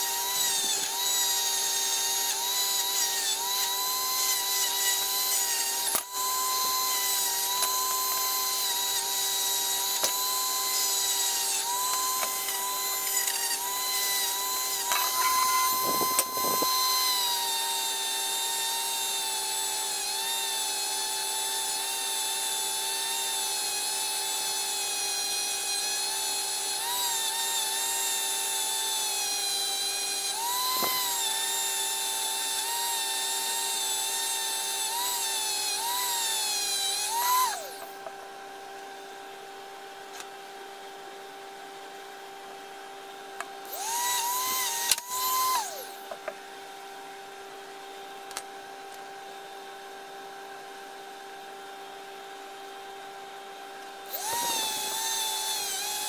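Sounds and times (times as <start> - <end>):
rotary tool wire brush whining: 0.0 - 38.1, 43.6 - 46.1, 54.1 - 56.0.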